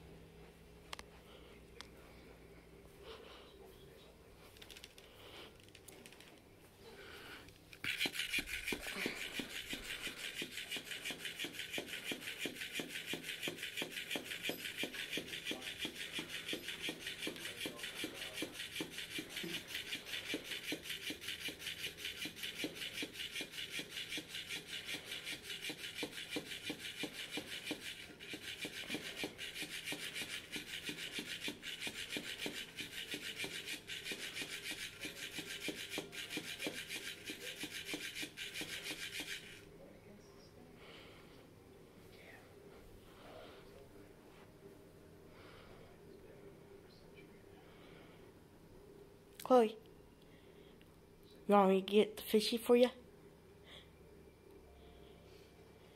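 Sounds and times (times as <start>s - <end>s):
toy rasping against wood: 7.8s - 39.7s.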